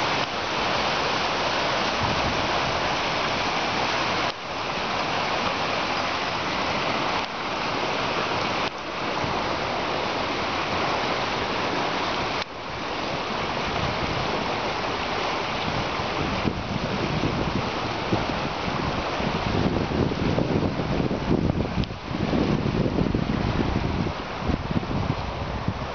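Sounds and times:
creek rushing over rocks: 0.0 - 25.9.

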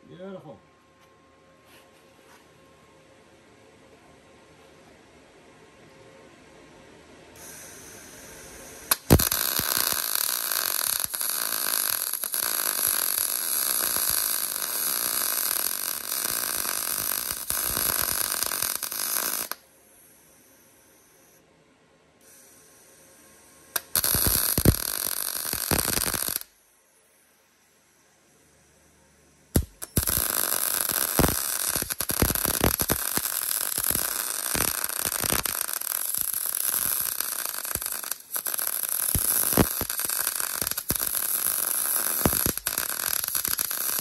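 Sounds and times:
welder arc crackling: 7.4 - 19.6, 23.8 - 26.5, 29.6 - 44.0.

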